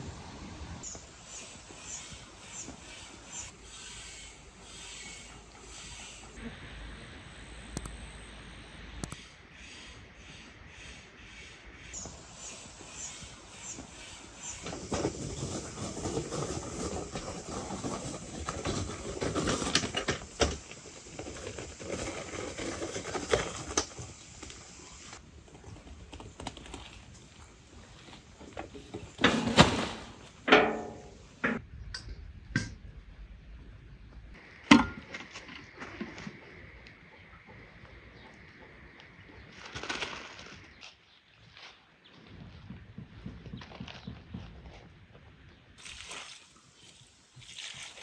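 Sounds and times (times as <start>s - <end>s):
metal wheelbarrow rattling: 14.6s - 24.0s, 28.4s - 31.6s.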